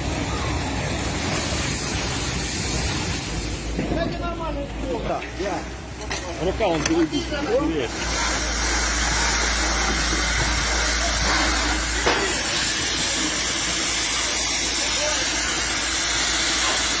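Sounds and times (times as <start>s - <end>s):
fire hose spray hissing: 0.0s - 17.0s.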